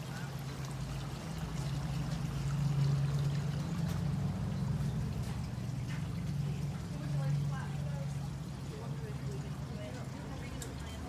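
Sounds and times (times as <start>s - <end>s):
running splashing water: 0.0s - 11.0s.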